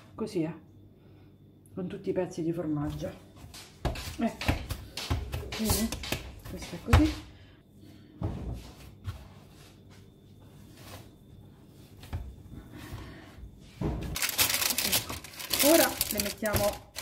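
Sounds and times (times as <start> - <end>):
hands kneading dough: 2.9 - 7.3
baking paper crinkling: 14.2 - 17.0.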